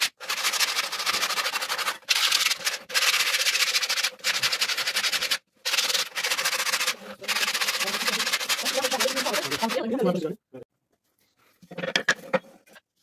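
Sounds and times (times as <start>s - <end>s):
sandpaper sanding wood: 0.0s - 10.0s.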